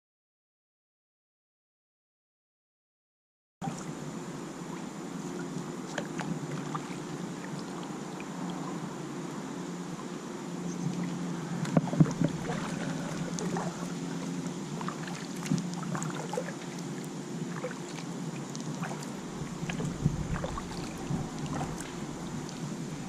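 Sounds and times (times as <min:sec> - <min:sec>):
steady low hum: 0:03.6 - 0:23.0
paddle strokes splashing: 0:04.6 - 0:08.7, 0:10.8 - 0:23.0.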